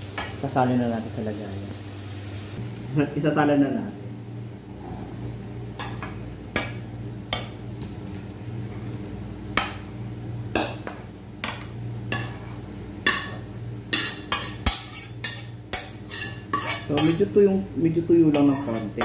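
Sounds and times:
steady low hum: 0:00.0 - 0:19.0
metal spoon scraping frying pan: 0:11.4 - 0:17.3, 0:18.2 - 0:19.0.

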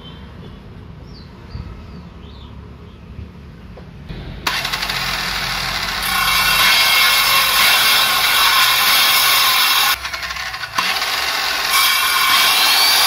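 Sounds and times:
circular saw cutting wood: 0:04.5 - 0:13.0.

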